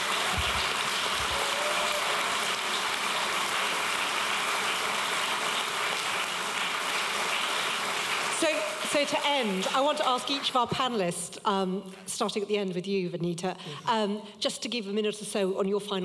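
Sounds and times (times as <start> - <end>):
audience applauding: 0.0 - 10.6.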